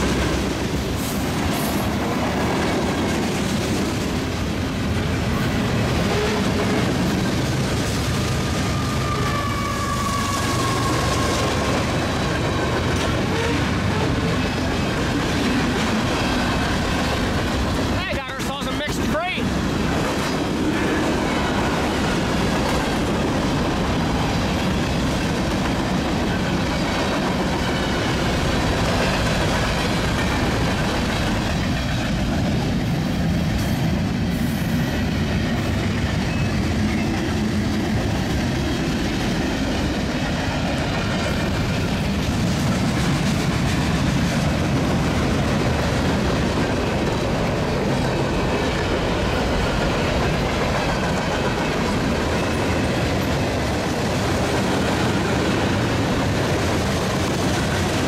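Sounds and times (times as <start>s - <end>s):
freight train cars rolling past: 0.0s - 58.0s.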